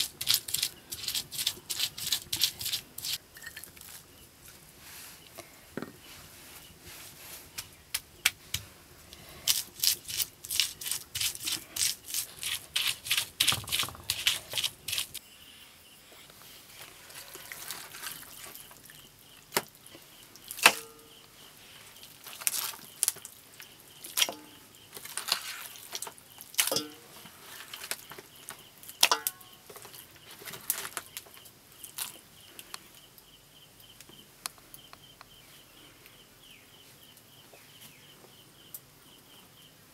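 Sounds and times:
clinks in a steel bowl: 26.7s - 27.1s, 29.0s - 29.5s.

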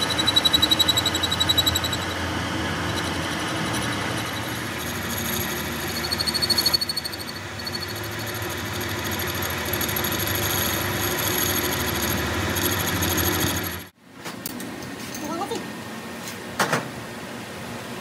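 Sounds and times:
cutting tool chatter with high ring: 0.0s - 13.9s
metal lathe running: 0.0s - 13.9s.

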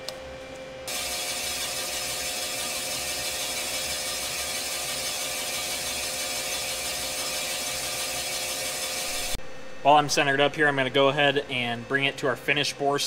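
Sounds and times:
machine hum: 0.0s - 13.0s
boring bar cutting hiss: 0.9s - 9.4s.

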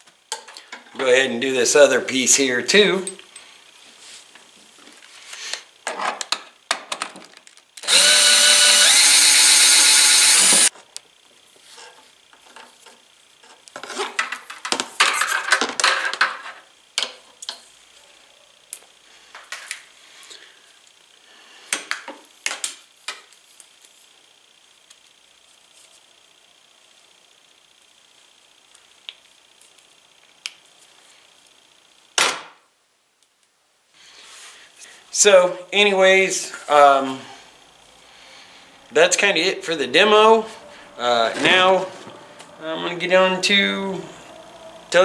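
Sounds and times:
cordless drill motor running: 7.8s - 10.7s, 37.0s - 45.0s.

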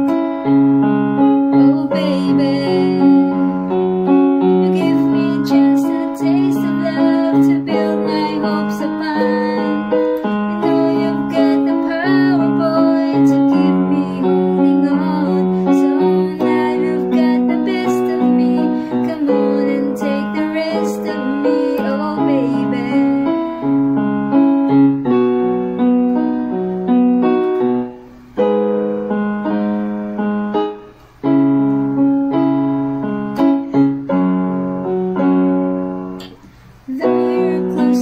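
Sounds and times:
electronic keyboard slow melody: 0.0s - 38.0s.

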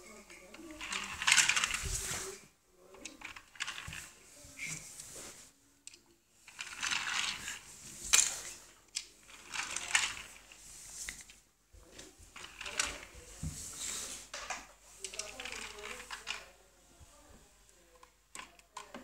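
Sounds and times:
toy car rolling and rattling: 0.5s - 2.2s, 3.0s - 4.2s, 6.4s - 10.6s, 12.3s - 13.2s, 14.4s - 16.5s.

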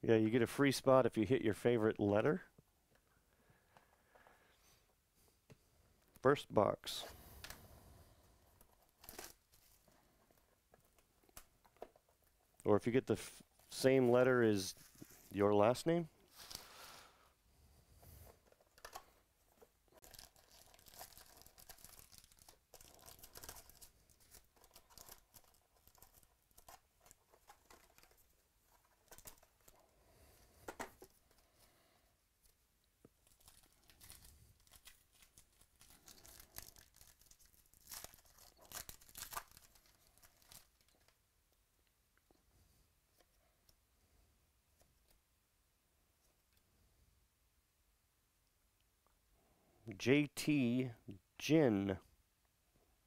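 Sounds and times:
foil wrappers crinkling and tearing: 19.9s - 28.2s, 33.2s - 41.2s.

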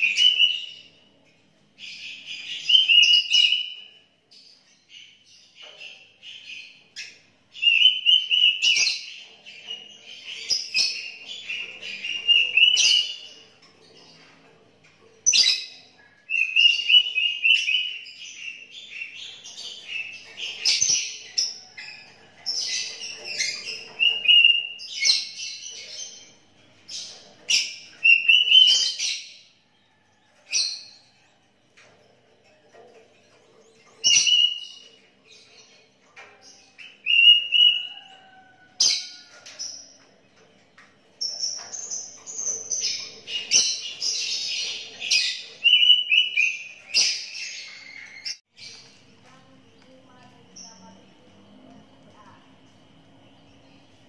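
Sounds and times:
bird singing whistled phrases: 0.1s - 0.7s, 28.0s - 29.0s.

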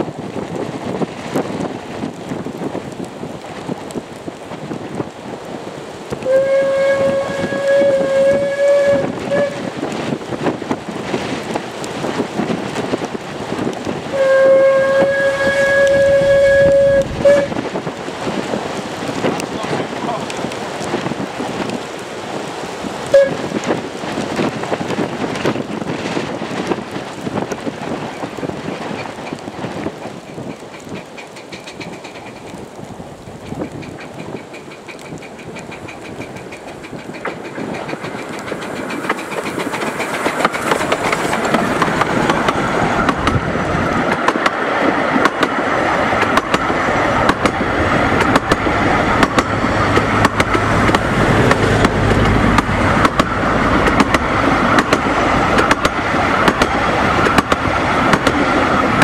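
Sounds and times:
steam train passing: 0.0s - 59.0s
wheels clicking over rail joints: 0.0s - 59.0s.

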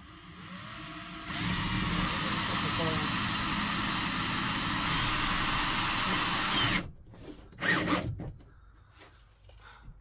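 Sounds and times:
cordless drill driving screw: 0.0s - 6.9s, 7.5s - 8.1s.

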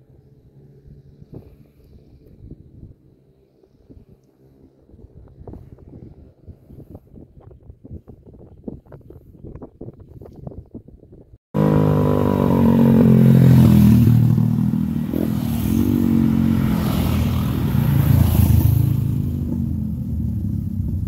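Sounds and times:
faint wind: 0.0s - 21.0s
motorcycles riding past: 11.6s - 21.0s.

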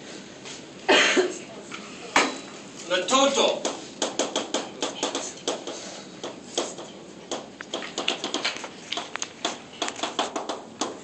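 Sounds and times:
chalk tapping on blackboard: 3.6s - 11.0s.

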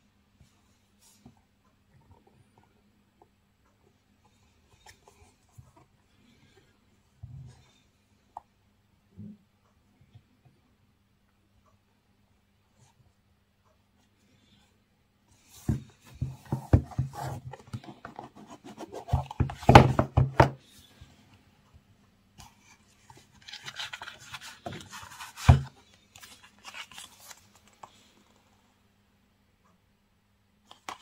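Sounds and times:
cardboard box knocks and rubbing: 15.6s - 17.5s, 19.0s - 20.6s
paper cards sliding on box: 23.3s - 27.4s.

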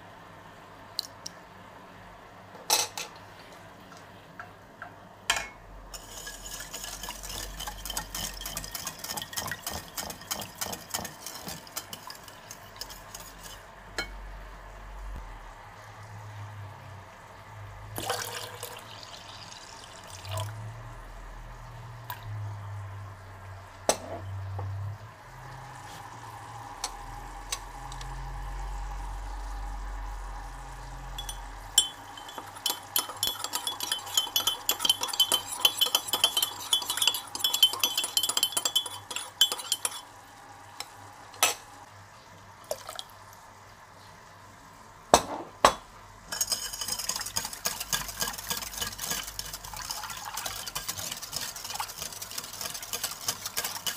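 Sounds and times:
utensils and bowls knocking: 5.3s - 14.1s, 31.2s - 40.0s
spoon clinking and scraping cup: 6.0s - 13.6s, 31.2s - 40.1s, 46.3s - 53.9s.

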